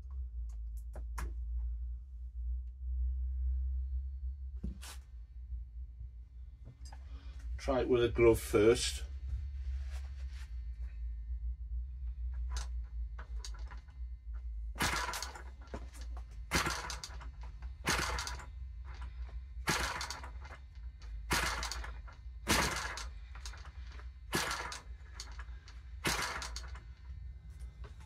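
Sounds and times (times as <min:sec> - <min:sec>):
propeller flicked by hand snapping: 0:12.5 - 0:13.9, 0:14.8 - 0:26.9.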